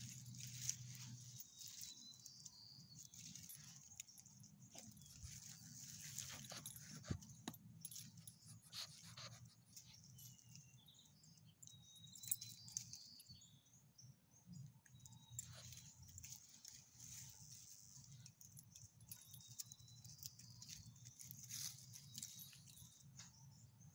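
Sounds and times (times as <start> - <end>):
leaves crackling underfoot: 0.0 - 4.0, 20.5 - 22.7
collar tags jingling: 0.0 - 23.9.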